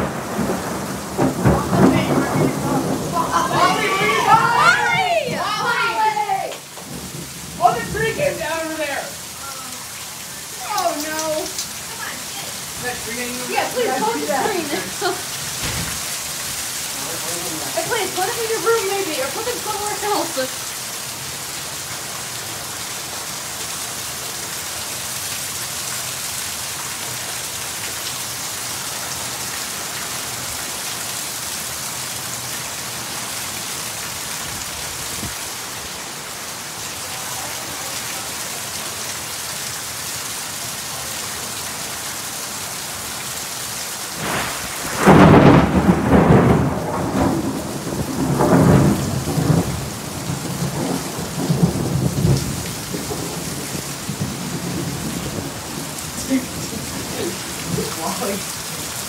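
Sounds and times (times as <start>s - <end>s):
thunder rumbling: 0.0s - 9.2s, 44.1s - 58.6s
heavy rain: 0.0s - 59.0s.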